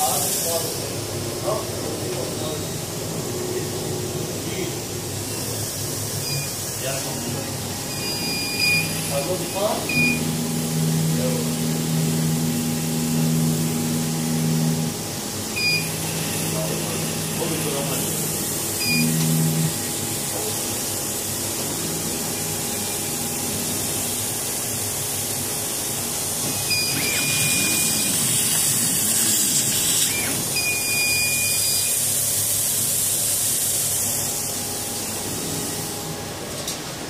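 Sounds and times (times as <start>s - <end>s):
hiss of air and fan: 0.0s - 37.0s
cutting head whines: 26.5s - 31.9s.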